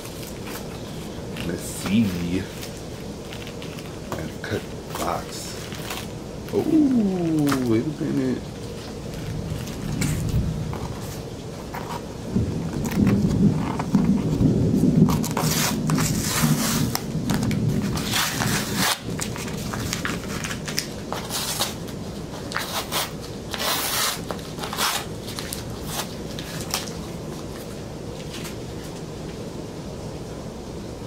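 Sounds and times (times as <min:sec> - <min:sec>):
low rumbling handling noise: 0:00.0 - 0:21.2
cardboard and tape crackling: 0:00.0 - 0:29.4.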